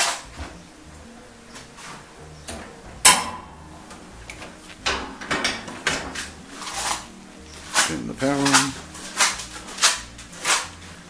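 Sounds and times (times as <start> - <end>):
metal lid closing clack: 2.5 - 3.6
light knocks of metal frames: 2.5 - 6.5.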